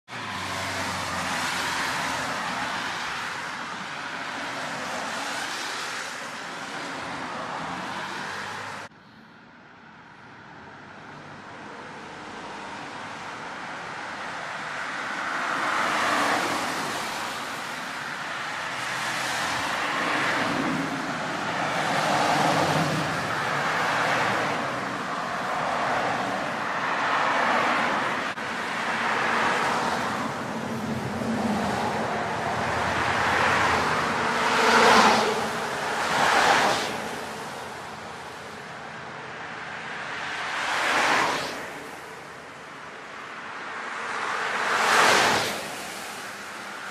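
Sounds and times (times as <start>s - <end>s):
tyres hissing on wet road: 32.9s - 37.6s, 40.2s - 42.0s, 44.5s - 46.9s.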